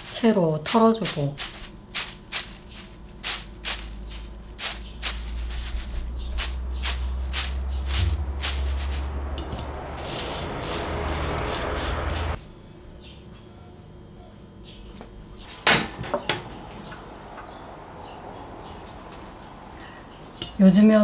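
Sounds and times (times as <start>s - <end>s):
pieces rattling in metal strainer: 0.0s - 12.4s.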